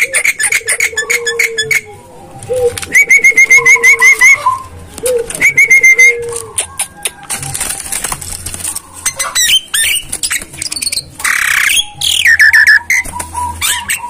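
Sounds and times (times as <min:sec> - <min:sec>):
bird clicks squawks and whistles: 0:05.4 - 0:07.5, 0:09.1 - 0:14.0.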